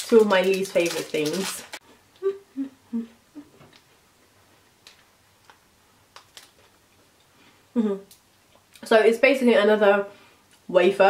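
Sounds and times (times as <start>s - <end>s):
person humming: 2.2s - 3.6s, 7.7s - 8.1s.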